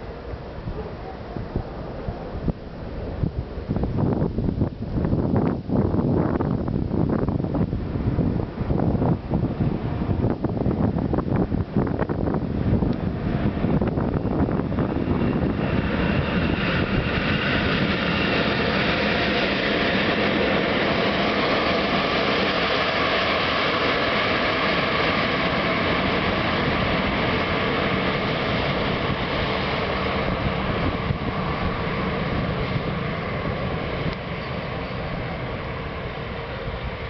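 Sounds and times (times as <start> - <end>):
wheels rumbling on rail: 0.0 - 37.0
faint steady whine: 25.4 - 37.0.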